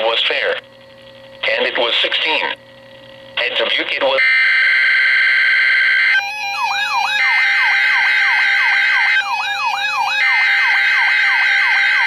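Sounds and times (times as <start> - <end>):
two-tone digital data screech: 3.4 - 12.0
sweeping siren-like alarm: 4.2 - 12.0.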